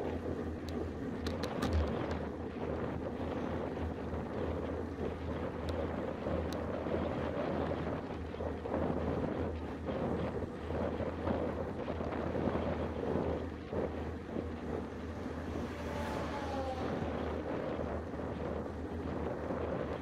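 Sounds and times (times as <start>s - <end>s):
wind rushing over microphone: 0.0s - 20.0s
truck passing: 14.3s - 19.1s.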